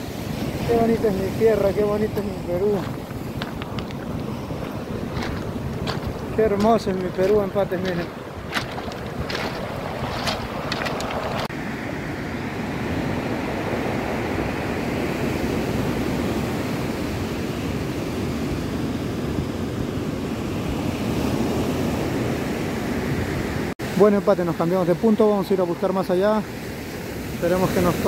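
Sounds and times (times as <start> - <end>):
wind noise on microphone: 0.0 - 11.5
ocean surf on stony beach: 0.0 - 28.0.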